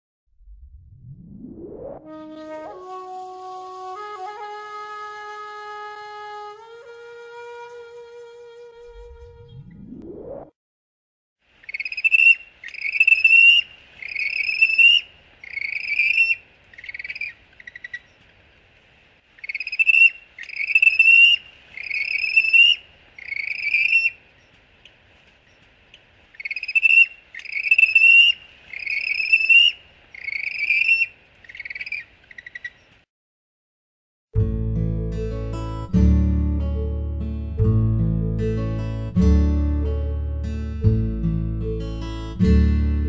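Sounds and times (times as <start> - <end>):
penguin chirping: 11.7 - 18.2, 19.4 - 24.2, 26.4 - 32.8.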